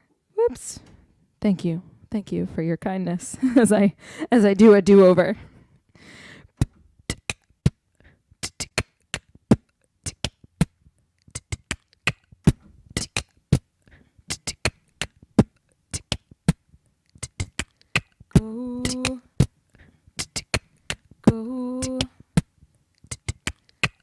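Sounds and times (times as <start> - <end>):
woman beatboxing: 6.6 - 7.8, 8.4 - 10.7, 11.3 - 13.6, 14.3 - 16.6, 17.2 - 19.6, 20.2 - 24.0.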